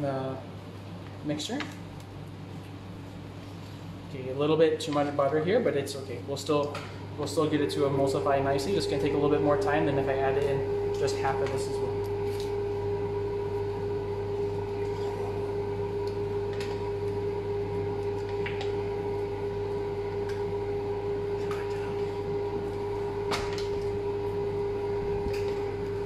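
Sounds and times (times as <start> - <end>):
machine hum: 0.0 - 26.0.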